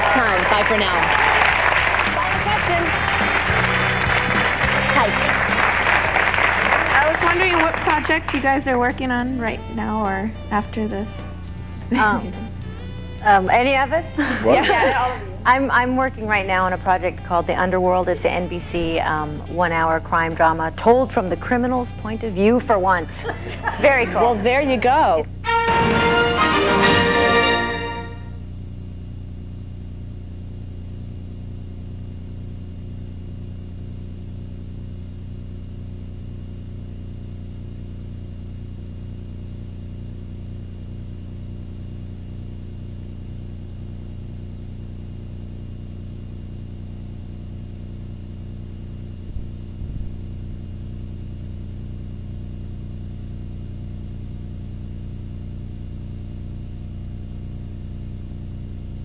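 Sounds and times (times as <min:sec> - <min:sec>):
electrical hum and buzz: 0:00.0 - 0:59.0
thin high whine: 0:09.1 - 0:16.3.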